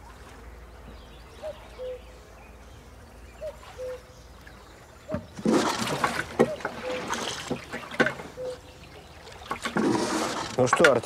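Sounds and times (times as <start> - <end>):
rowing noise: 3.8 - 11.0
oarlocks squeaking: 5.1 - 8.9.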